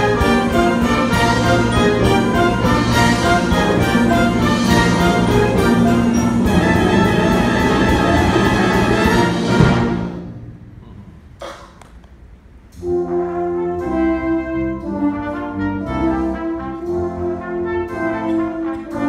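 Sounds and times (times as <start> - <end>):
wind orchestra with piano: 0.0 - 10.8, 12.7 - 19.0.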